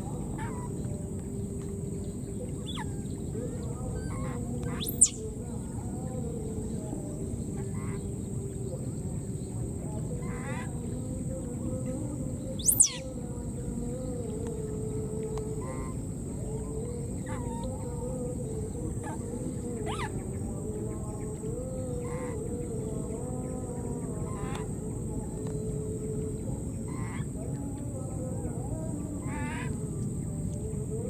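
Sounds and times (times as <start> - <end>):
short animal calls: 12.6 - 13.0.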